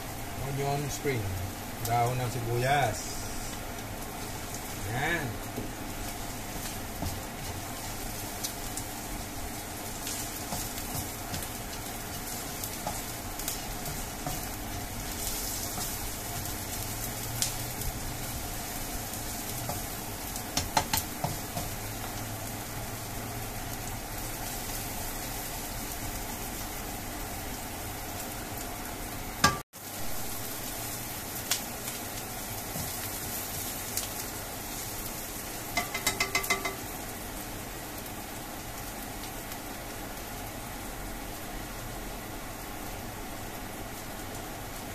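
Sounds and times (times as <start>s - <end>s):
aromatics sizzling in hot oil: 0.0s - 44.9s
spatula stirring and scraping: 5.5s - 16.8s
spatula tapping on pan: 20.5s - 21.7s, 29.4s - 29.6s, 35.7s - 36.9s.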